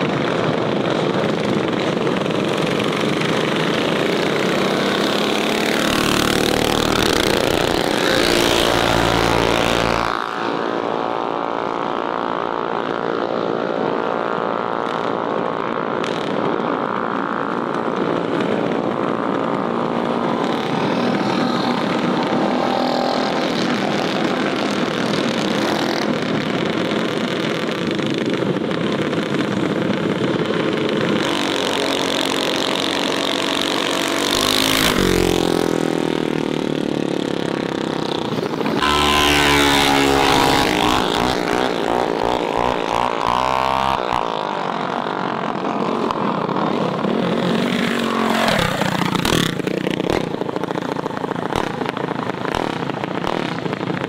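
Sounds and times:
mini bike engines revving past: 0.0s - 54.0s.

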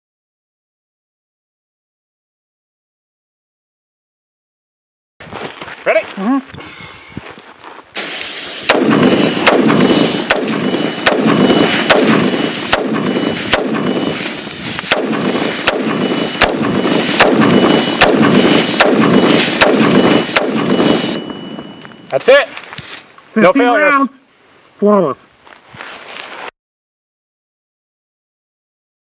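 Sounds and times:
compressed air hissing from hose: 8.0s - 21.2s
rifle gunshots: 8.6s - 13.9s, 14.9s - 20.8s.

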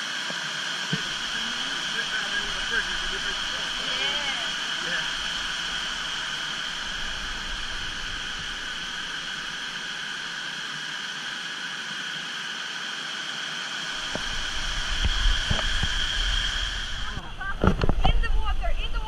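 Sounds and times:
waterfall rushing: 0.8s - 10.6s, 13.8s - 17.5s
low rumble: 1.0s - 10.0s, 13.9s - 19.0s.

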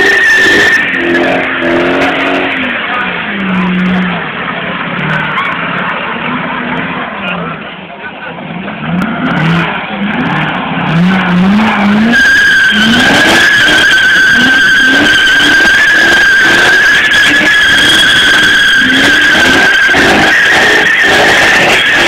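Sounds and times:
engine revving: 0.0s - 22.0s
tyres squealing: 9.6s - 22.0s.

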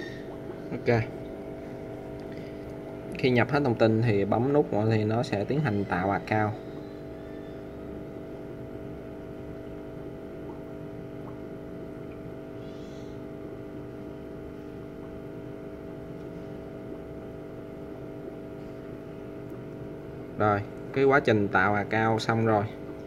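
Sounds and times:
mechanical hum with held tones: 0.0s - 23.0s.

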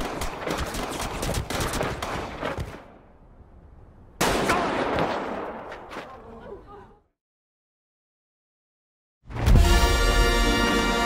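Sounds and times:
rapid gunshots: 0.0s - 2.8s.

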